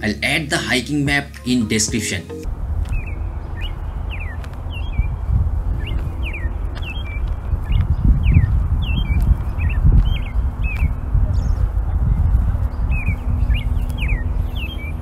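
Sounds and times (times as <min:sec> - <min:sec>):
bird chirping: 0:02.1 - 0:15.0
low rumble on microphone: 0:02.5 - 0:15.0.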